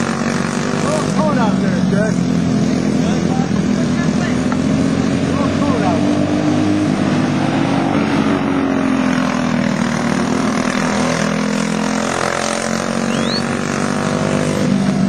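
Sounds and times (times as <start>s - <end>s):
go-kart engines racing: 0.0s - 15.0s.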